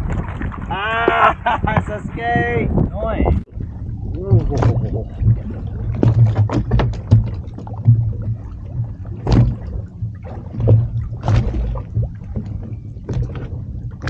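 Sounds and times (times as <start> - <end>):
water slapping against hull: 0.0 - 14.0
low engine rumble: 3.0 - 14.0.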